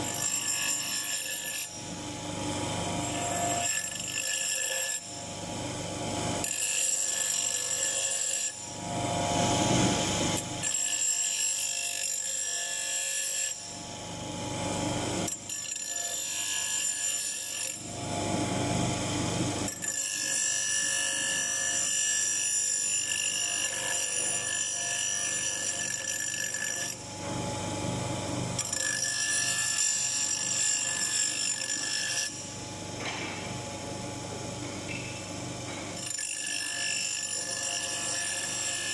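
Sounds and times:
grinding wheel grinding iron: 34.9 - 38.9.

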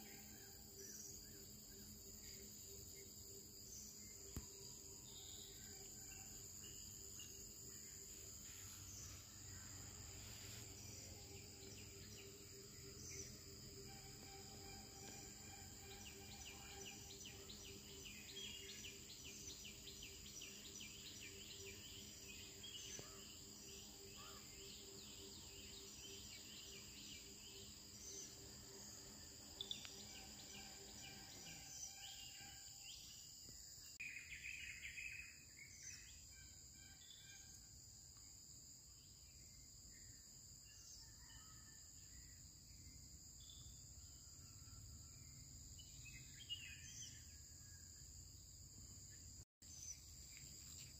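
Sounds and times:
bird chirps: 3.7 - 33.3
insect trilling: 4.3 - 33.0.

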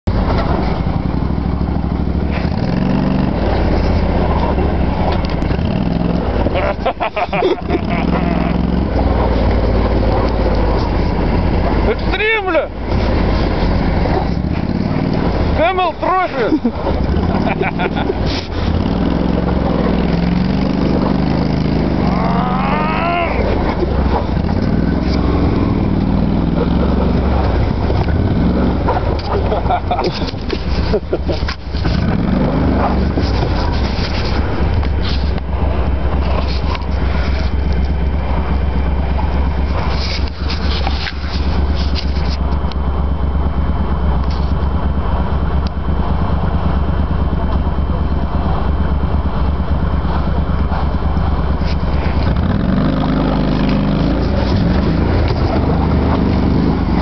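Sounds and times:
vehicle engine running loudly: 0.0 - 57.0
drawn-out pitched cry: 7.4 - 8.9, 21.8 - 24.2.

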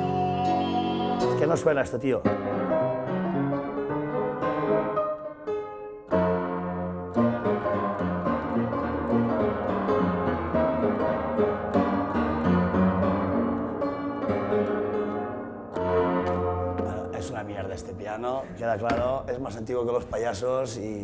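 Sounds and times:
upright piano chords and runs: 0.0 - 19.3
person talking: 1.2 - 2.3, 16.8 - 21.0.

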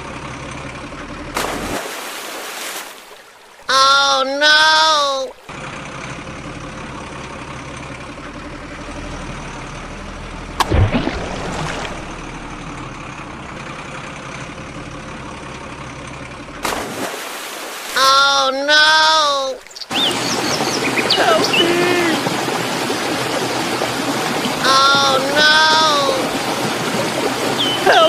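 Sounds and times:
engine idling: 0.0 - 1.8, 3.2 - 28.0
splashy noise: 1.4 - 3.7, 10.6 - 12.6, 16.6 - 28.0.

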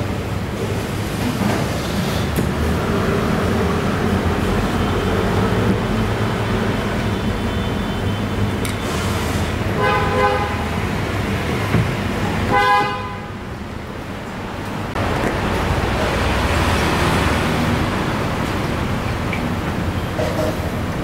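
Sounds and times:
vehicle horn toots: 9.8 - 10.7, 12.5 - 13.4.

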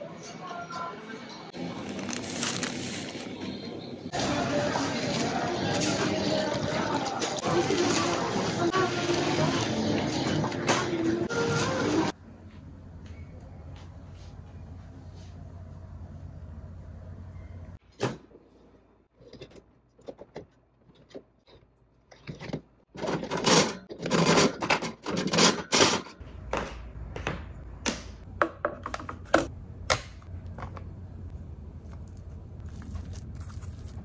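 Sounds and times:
wire shelves rattling and scraping: 19.2 - 26.2.

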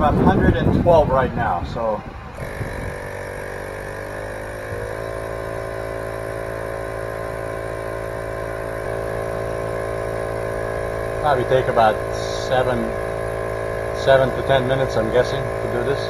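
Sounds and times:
air compressor running: 0.0 - 16.0.

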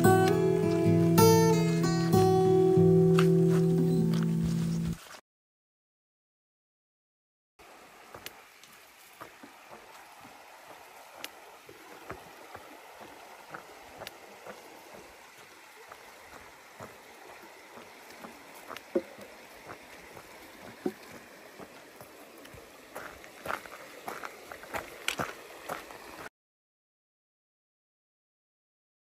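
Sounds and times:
creek water running: 0.0 - 5.2, 7.6 - 26.3
footsteps on wooden boards: 3.1 - 5.1, 8.1 - 26.0.

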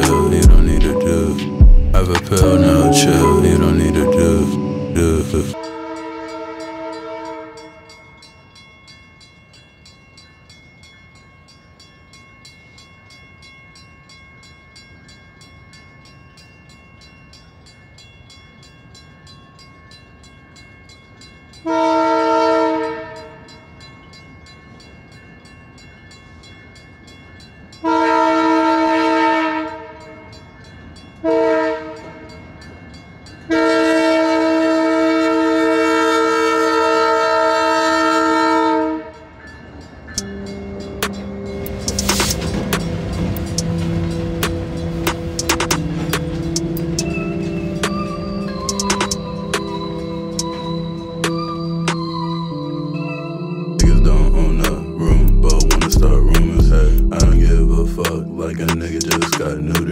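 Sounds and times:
locomotive air horn blasts: 5.6 - 7.8, 21.7 - 23.2, 27.9 - 30.0, 33.5 - 39.2.

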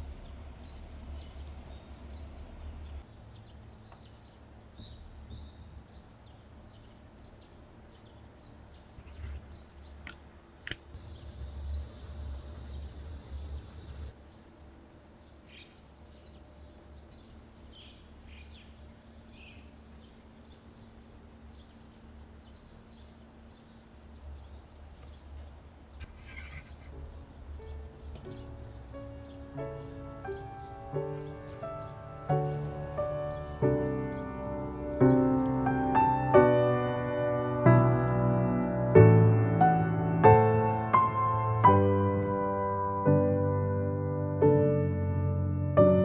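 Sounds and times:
faint bird chirps: 11.0 - 21.0, 26.0 - 28.5.

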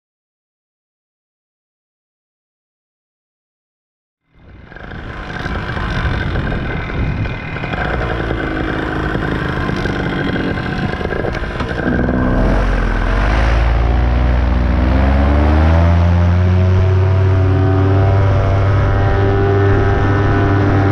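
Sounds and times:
rushing wind: 4.3 - 20.9
paramotor engine revving: 4.5 - 20.9.

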